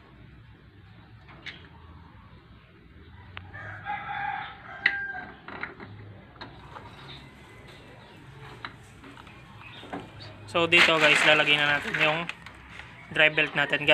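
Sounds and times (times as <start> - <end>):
rooster crowing: 3.2 - 5.5.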